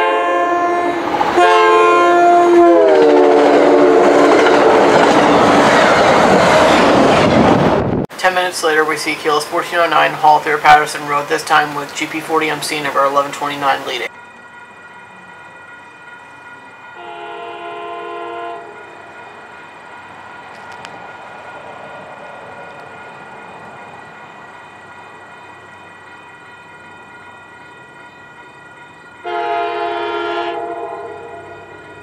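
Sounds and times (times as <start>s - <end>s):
locomotive horn blasts: 0.0s - 4.5s, 17.0s - 19.1s, 29.2s - 31.7s
crossing bell ringing: 8.2s - 32.0s.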